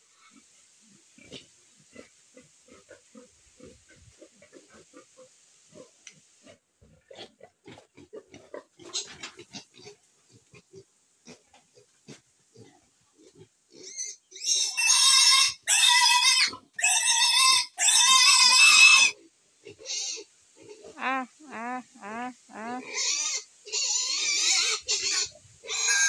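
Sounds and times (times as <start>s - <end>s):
soft pig grunts: 1.2s - 14.0s
piglet squealing loudly: 14.4s - 19.2s, 24.0s - 26.0s.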